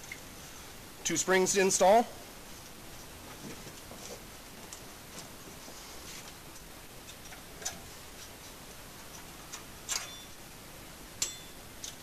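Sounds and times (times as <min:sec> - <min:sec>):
springs clinking against metal pipe: 0:11.2 - 0:12.0.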